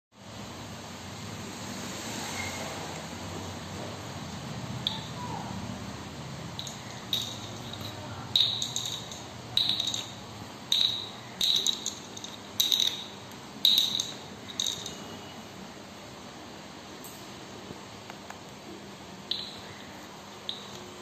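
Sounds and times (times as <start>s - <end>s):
bottle cap clinking on hard surface: 6.6s - 15.2s, 19.3s - 19.8s.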